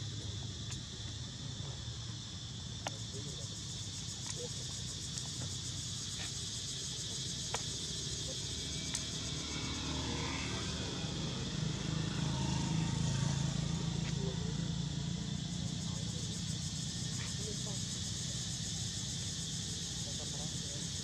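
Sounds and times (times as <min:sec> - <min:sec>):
high insect drone: 0:00.0 - 0:21.0.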